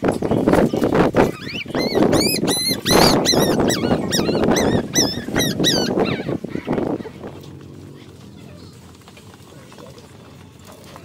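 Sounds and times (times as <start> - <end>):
puppies squealing and whining: 1.2 - 7.2.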